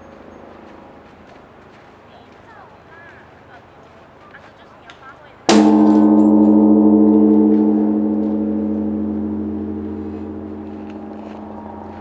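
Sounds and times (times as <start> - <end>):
large temple bell ringing: 5.5 - 12.0.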